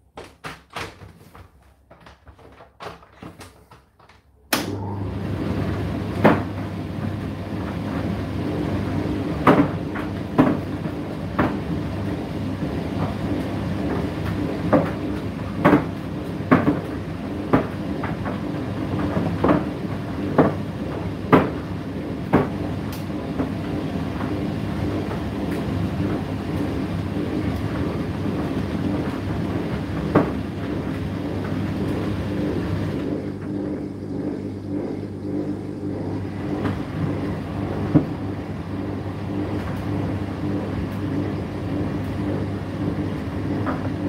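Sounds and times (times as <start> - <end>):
tumble dryer motor hum: 1.9 - 44.0.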